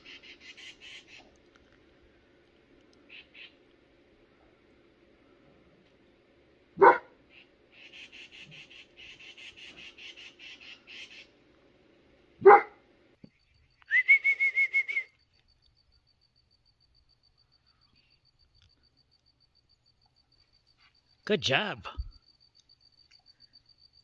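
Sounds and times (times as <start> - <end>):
bird chattering: 0.0 - 1.3, 3.1 - 3.6, 7.3 - 11.3
large dog barking: 6.8 - 7.2, 12.4 - 12.8
high trilled whistle: 13.8 - 15.2.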